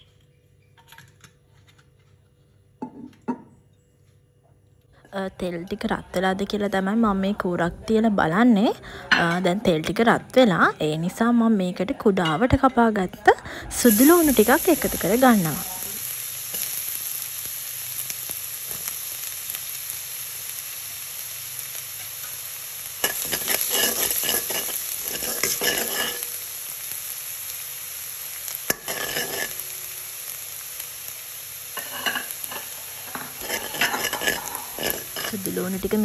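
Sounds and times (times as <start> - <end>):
garlic sizzling in oil: 13.6 - 36.0
metal spoon scraping wok: 23.0 - 26.4, 28.7 - 29.7, 31.8 - 36.0.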